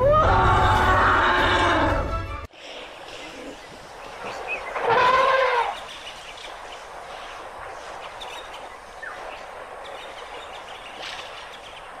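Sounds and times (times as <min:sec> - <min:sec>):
outdoor hiss: 0:02.4 - 0:12.0.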